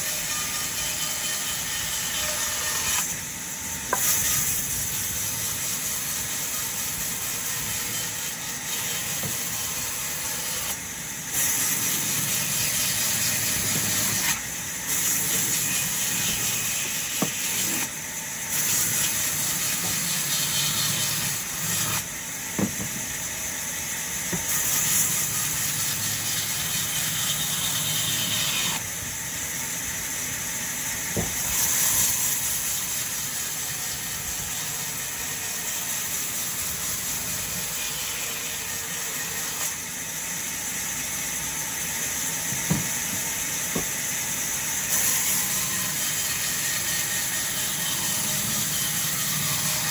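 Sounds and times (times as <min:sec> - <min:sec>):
band saw cutting logs: 0:00.0 - 0:49.9
wood knocking on table: 0:22.6 - 0:23.0.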